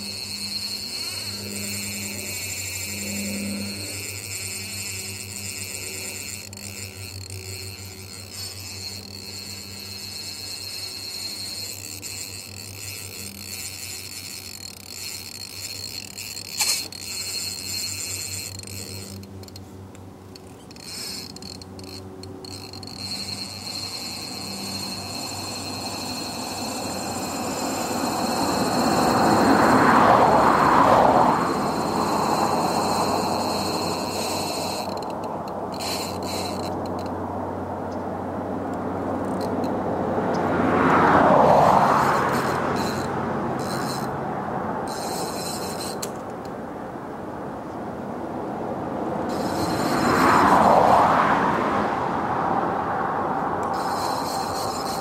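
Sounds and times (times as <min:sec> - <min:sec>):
steady low hum: 0:00.0 - 0:55.0
vehicle passing: 0:20.3 - 0:55.0.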